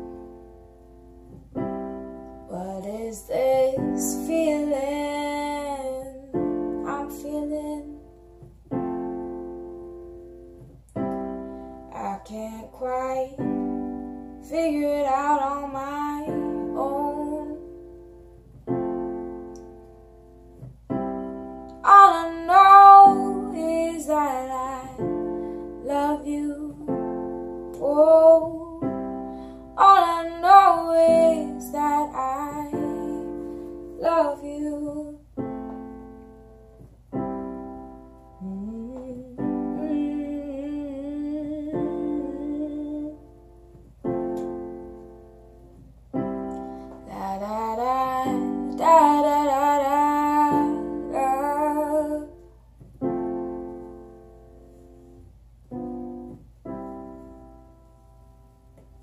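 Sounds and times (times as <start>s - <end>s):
slow piano chords: 0.0s - 59.0s
woman's wordless singing: 2.5s - 8.0s, 11.9s - 13.8s, 14.4s - 17.7s, 21.7s - 29.2s, 29.8s - 35.3s, 38.4s - 43.3s, 47.0s - 52.4s.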